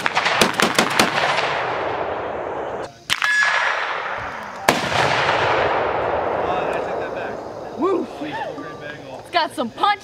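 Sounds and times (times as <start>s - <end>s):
loud revolver shot: 0.0s - 2.4s, 3.1s - 6.6s
shotgun shots echoing: 0.0s - 7.2s
sharp crack with ringing tone: 0.0s - 7.4s.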